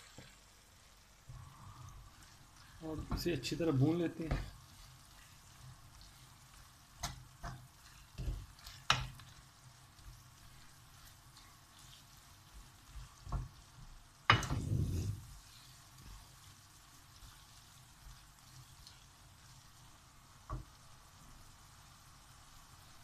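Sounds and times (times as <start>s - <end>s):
faint sizzle: 0.0s - 23.0s
wooden spoon stirring in a pan: 0.0s - 23.0s.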